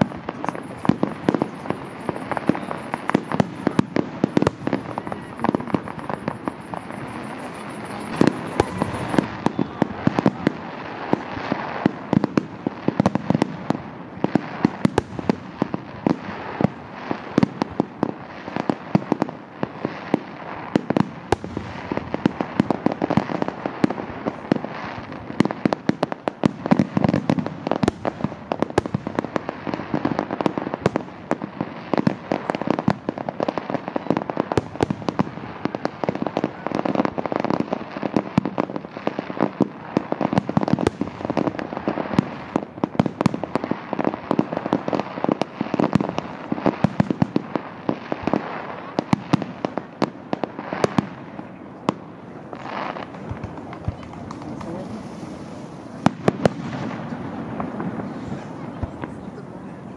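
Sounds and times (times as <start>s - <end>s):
fireworks bangs: 0.0s - 59.9s.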